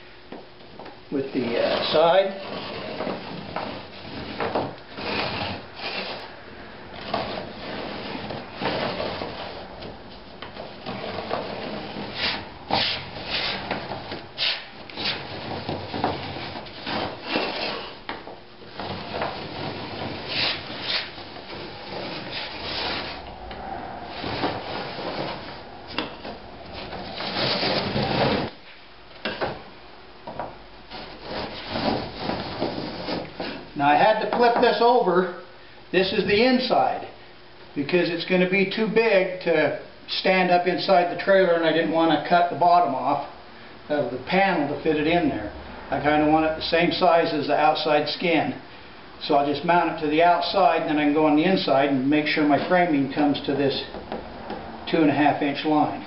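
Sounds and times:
wood scraping on wood: 1.4s - 29.5s, 30.3s - 34.8s.

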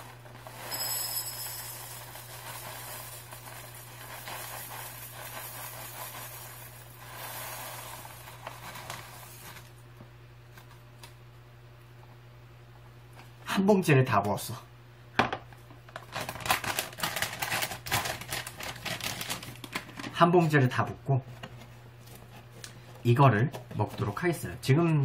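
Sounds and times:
cereal puffs pattering into bowl: 0.0s - 9.7s, 16.0s - 20.2s
plastic bag crinkling: 1.5s - 9.7s, 15.9s - 20.2s.

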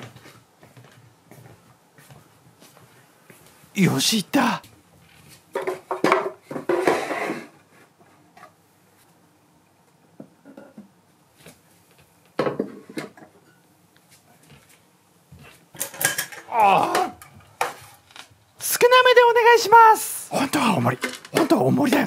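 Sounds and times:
wooden crates scraping on shelf: 6.6s - 7.6s.

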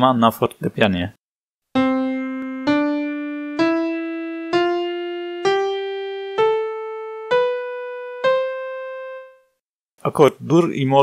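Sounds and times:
piano playing ascending scale: 1.7s - 9.6s.

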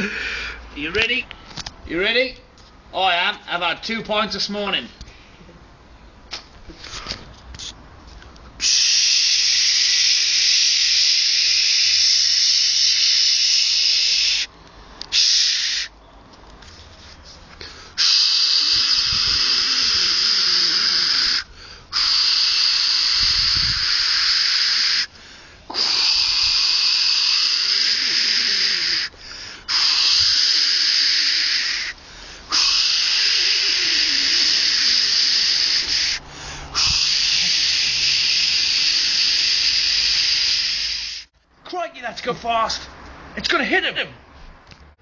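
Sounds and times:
loud steady hiss: 8.6s - 16.0s, 17.6s - 41.3s.

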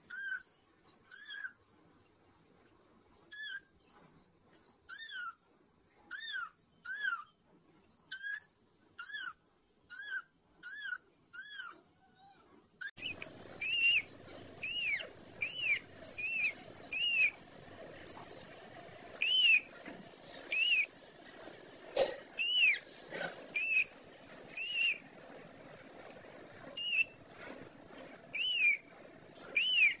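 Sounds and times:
kitten mewing: 13.0s - 17.4s, 22.0s - 23.9s, 24.6s - 24.9s, 29.6s - 30.0s
low background hiss: 13.0s - 30.0s.

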